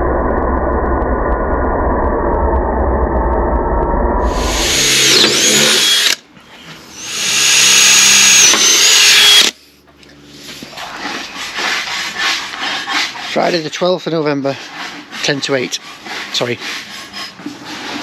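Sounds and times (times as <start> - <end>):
cordless drill boring through steel: 4.2 - 6.2, 6.9 - 9.6.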